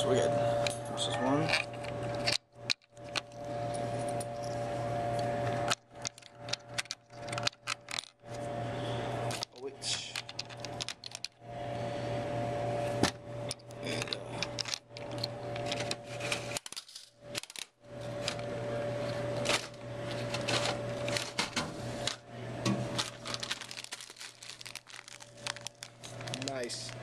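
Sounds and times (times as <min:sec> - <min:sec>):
steady hum: 0:00.0 - 0:27.0
vending machine clicking and rattling: 0:05.4 - 0:08.3, 0:09.3 - 0:11.4, 0:13.5 - 0:18.4, 0:19.1 - 0:27.0.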